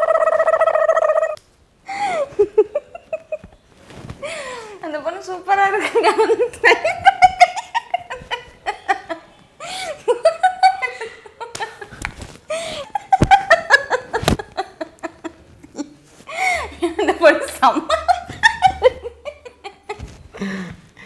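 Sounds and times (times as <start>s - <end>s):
woman and man laughing: 0.0s - 3.4s, 5.9s - 11.9s, 12.5s - 20.1s
dull thumps: 19.9s - 20.9s.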